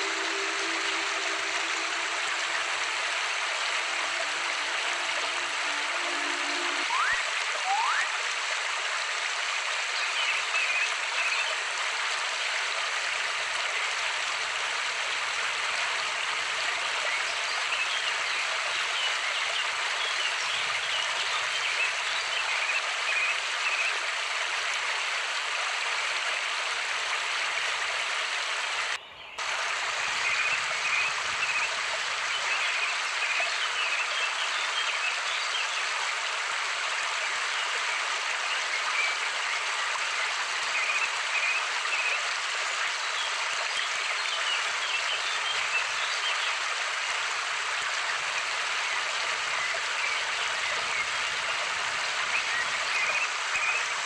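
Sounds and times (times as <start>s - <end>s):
running water: 0.0s - 54.0s.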